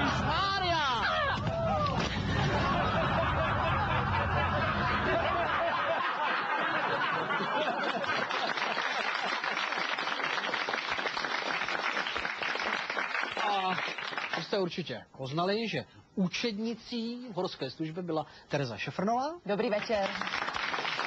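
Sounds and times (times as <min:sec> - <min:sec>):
audience laughing: 0:02.2 - 0:09.5
audience applauding: 0:06.7 - 0:14.6, 0:19.6 - 0:21.0.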